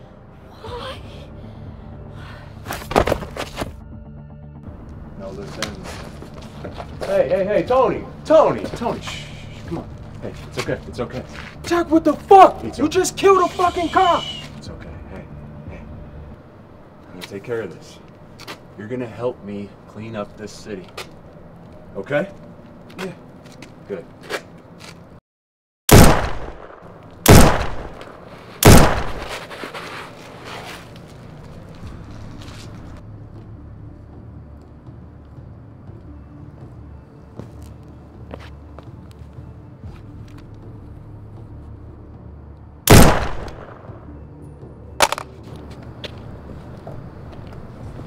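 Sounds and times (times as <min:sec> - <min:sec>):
gunshots with echo: 0:25.9 - 0:29.4, 0:42.9 - 0:43.9
quieter sharp crack: 0:25.9 - 0:30.0, 0:42.9 - 0:44.0.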